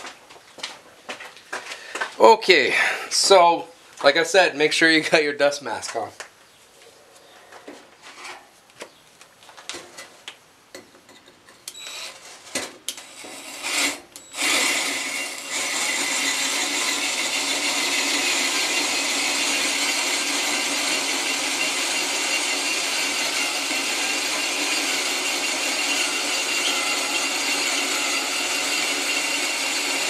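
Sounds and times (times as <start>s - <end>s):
drill boring into brick: 11.7s - 12.2s, 12.9s - 30.0s.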